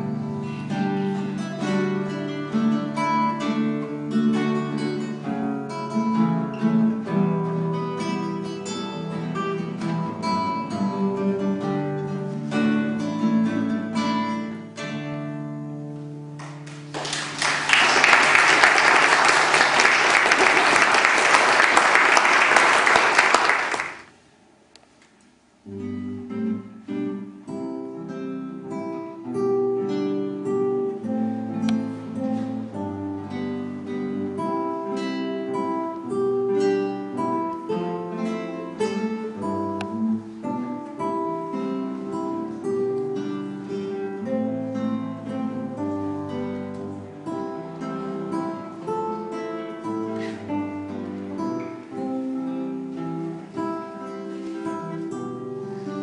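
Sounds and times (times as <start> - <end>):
classical guitar duet: 0.0 - 56.0
audience applause: 16.4 - 24.2.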